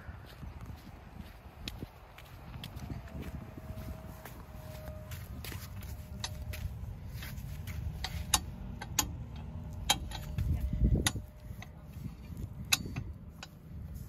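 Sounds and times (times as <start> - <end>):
footsteps on wet pavement: 0.0 - 7.9
low rumble: 0.0 - 14.0.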